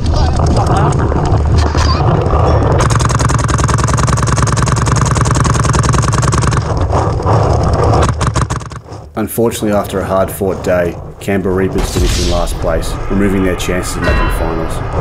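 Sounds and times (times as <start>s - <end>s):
steady low rumble: 0.0s - 15.0s
paintball markers firing: 2.3s - 9.0s.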